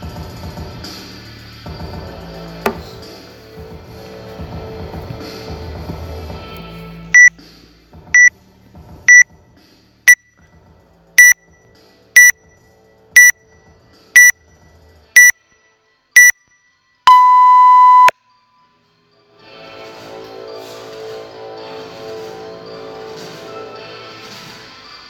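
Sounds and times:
long lower timer beep: 13.2s - 13.4s, 15.2s - 15.4s, 17.1s - 18.1s
short high timer beeps: 17.1s - 18.1s.

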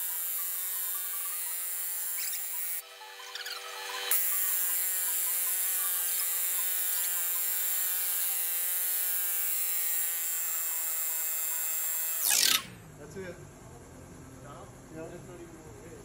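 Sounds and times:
pneumatic impact wrench whining: 0.0s - 12.8s.

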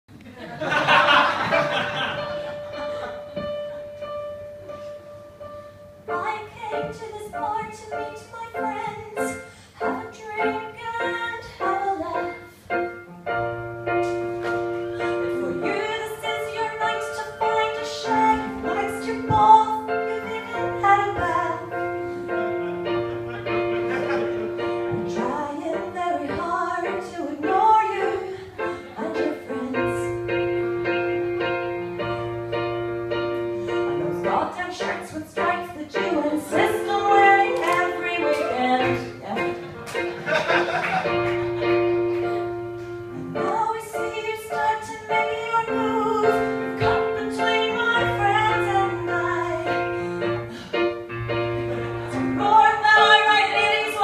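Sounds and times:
woman singing: 6.1s - 12.5s, 15.0s - 21.8s, 25.0s - 30.4s, 33.7s - 39.6s, 43.4s - 50.0s, 52.1s - 54.0s.

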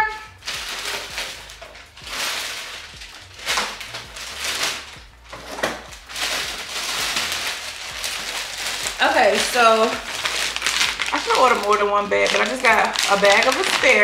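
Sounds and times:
plastic bags rustling: 0.0s - 14.0s.

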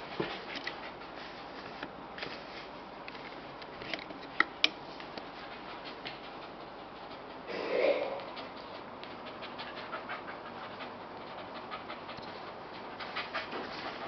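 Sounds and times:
dog panting: 0.0s - 1.5s, 5.2s - 14.0s.

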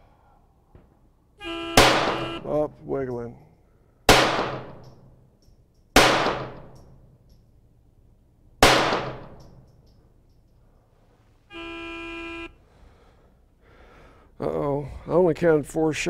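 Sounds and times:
pistol shots: 1.8s - 2.4s, 4.1s - 5.2s, 6.0s - 7.0s, 8.6s - 9.7s.

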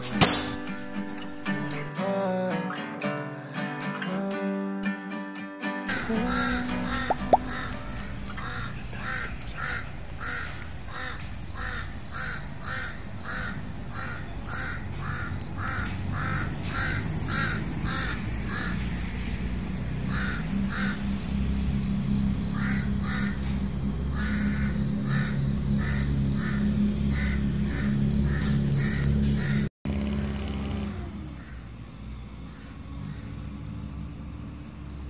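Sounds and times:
bird calling: 5.9s - 33.7s.

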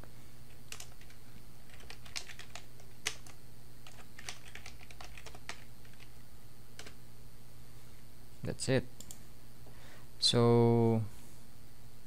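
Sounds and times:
steady low hum: 0.0s - 12.0s
typing on computer keyboard: 0.7s - 6.1s.

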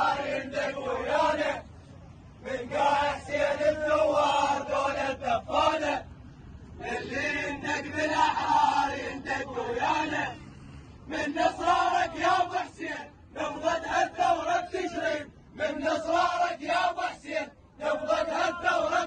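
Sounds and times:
men chanting in unison: 0.0s - 1.7s, 2.4s - 6.1s, 6.8s - 19.0s.

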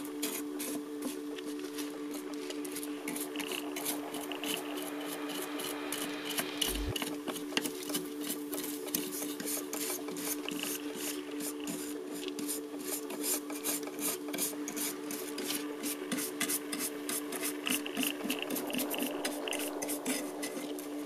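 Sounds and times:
low steady hum: 0.0s - 12.9s, 14.6s - 21.0s.

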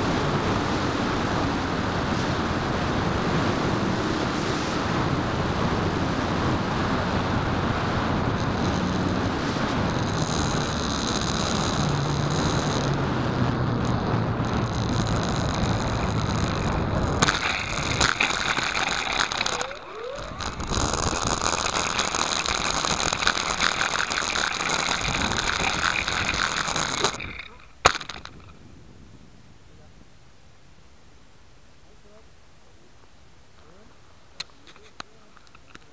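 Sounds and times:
high motor whine: 0.0s - 28.6s
wheels rattling over rough grass: 0.0s - 28.6s
wind rushing over camera: 0.0s - 30.2s.

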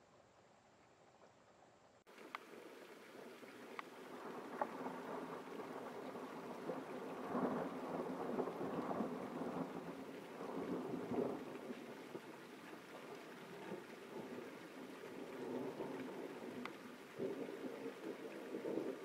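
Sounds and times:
steady rain: 2.0s - 19.0s
sharp drip ticks: 2.1s - 4.8s, 16.0s - 17.2s
thunder rolling: 3.2s - 19.0s.

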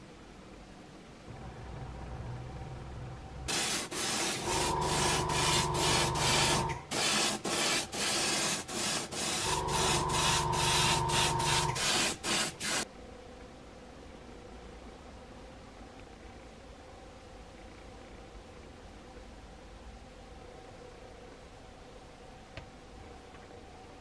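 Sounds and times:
air compressor humming: 1.3s - 12.8s
airbrush hissing bursts: 3.5s - 12.9s.

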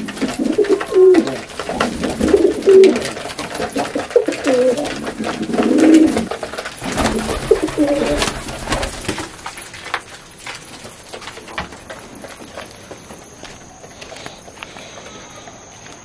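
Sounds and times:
pigeons cooing: 0.0s - 16.0s.

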